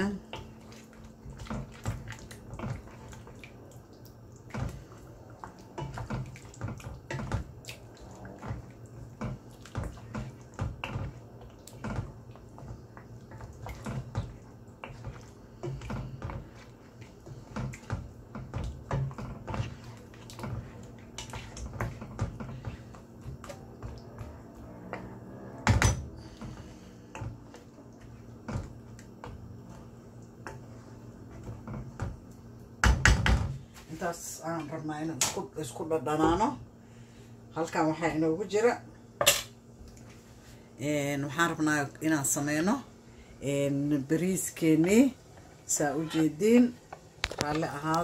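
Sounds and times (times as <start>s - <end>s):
wet squelches of stirred sauce: 0.0s - 32.8s, 39.7s - 40.8s.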